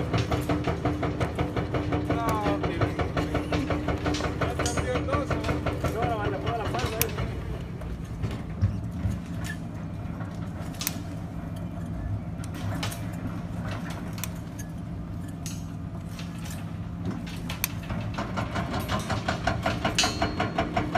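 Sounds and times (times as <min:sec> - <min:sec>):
wire clinking against rebar: 0:00.0 - 0:20.9.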